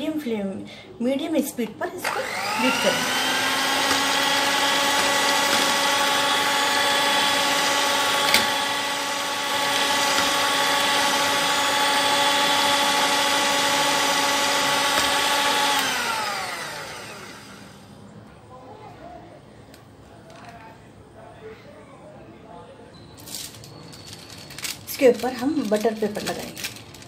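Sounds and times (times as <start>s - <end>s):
electric hand mixer whining: 2.0s - 18.0s.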